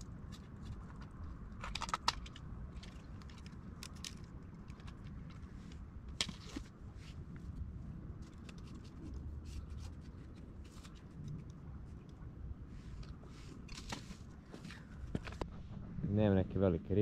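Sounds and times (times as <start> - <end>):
fishing tackle clicking and rattling: 0.0 - 6.4
low rumble: 2.2 - 17.0.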